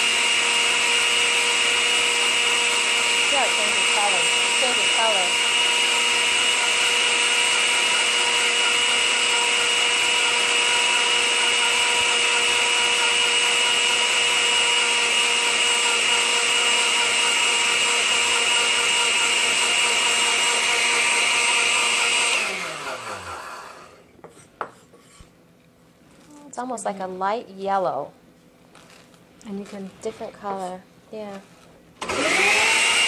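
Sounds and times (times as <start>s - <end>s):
blender motor running: 0.0s - 24.0s, 32.0s - 33.0s
blender motor winding down: 0.0s - 24.0s, 32.0s - 33.0s.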